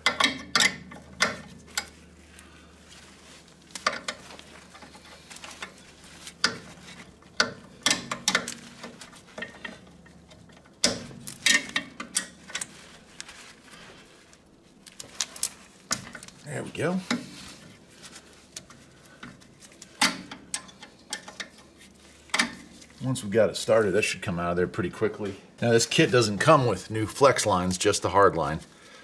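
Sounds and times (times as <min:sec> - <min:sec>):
wrenches clinking on metal fitting: 0:00.0 - 0:01.9.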